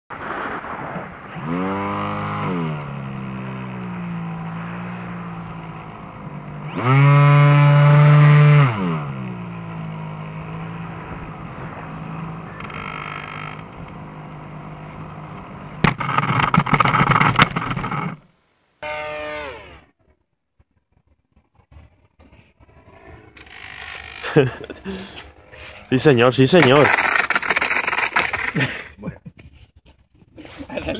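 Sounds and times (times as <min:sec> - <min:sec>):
plane crashing on asphalt: 0:00.1 - 0:07.3, 0:07.9 - 0:18.2, 0:22.6 - 0:28.9
electric motor and propeller whining: 0:00.6 - 0:18.2, 0:18.8 - 0:20.0, 0:21.6 - 0:28.6.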